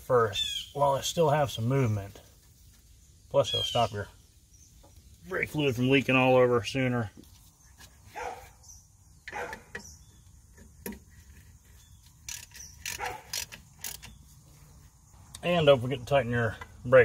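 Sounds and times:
metallic clicks of hand wrench: 12.2s - 14.2s.

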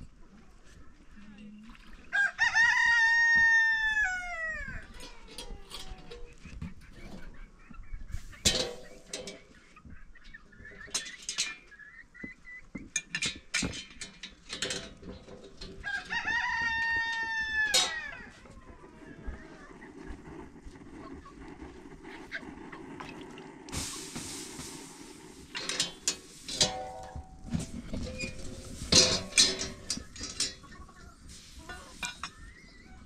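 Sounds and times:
rooster crowing: 2.1s - 4.8s, 15.8s - 18.3s.

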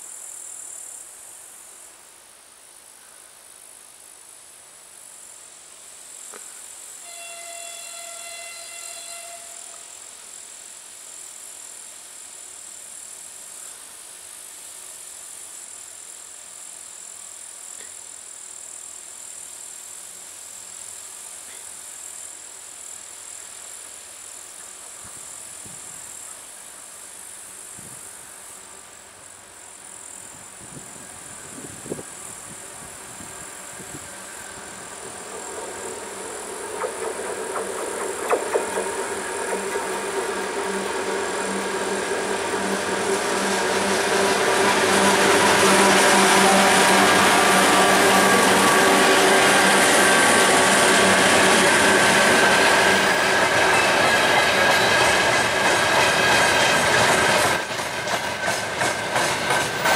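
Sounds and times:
insects chirring: 0.0s - 59.9s
locomotive horn: 7.0s - 9.9s, 38.9s - 52.4s
low rumble of locomotive: 24.5s - 59.9s.

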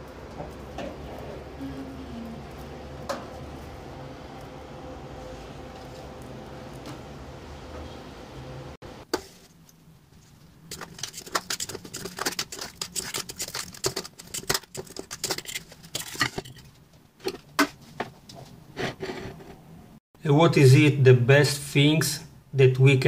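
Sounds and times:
steady hum: 0.0s - 17.8s
fork scraping metal pan: 10.7s - 16.7s.

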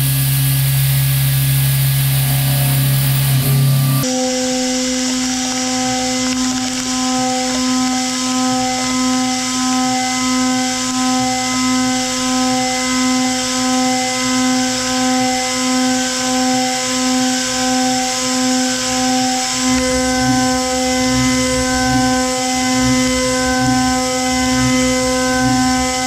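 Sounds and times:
deep machine rumble: 0.0s - 4.1s, 19.8s - 26.0s
milling machine cutting metal: 0.0s - 26.0s.

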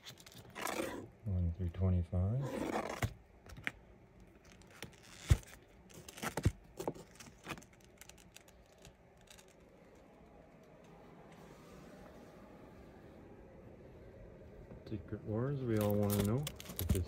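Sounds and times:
faint room noise: 0.0s - 17.0s
comic books clicking and knocking: 4.6s - 8.4s, 15.7s - 17.0s.

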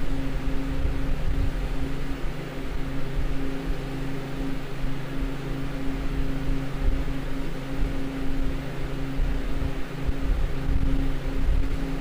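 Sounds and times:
constant low hum: 0.0s - 12.0s.

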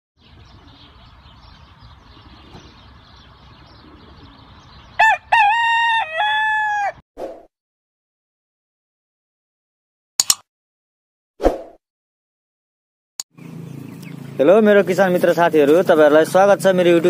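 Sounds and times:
rooster crowing: 5.0s - 7.0s.

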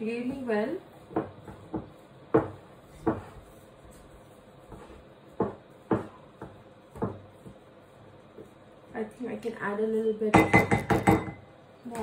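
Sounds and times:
wooden spoon stirring thick mix: 0.0s - 10.3s
spoon knocking ceramic bowl: 10.3s - 11.4s.

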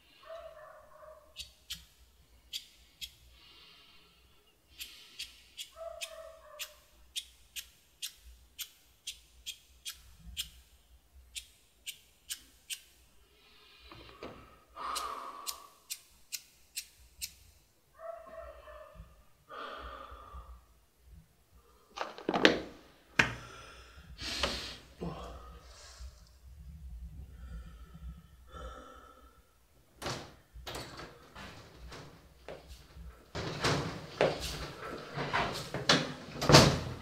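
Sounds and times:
man moaning breaths: 13.7s - 15.9s, 19.5s - 20.7s, 23.3s - 26.2s, 27.2s - 29.6s.

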